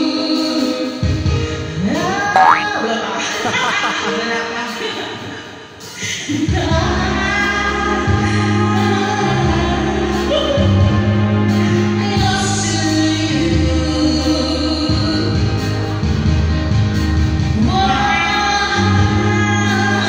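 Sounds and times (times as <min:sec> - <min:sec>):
amplified singing: 0:00.0 - 0:16.0, 0:17.5 - 0:20.0
loud backing music: 0:00.0 - 0:20.0.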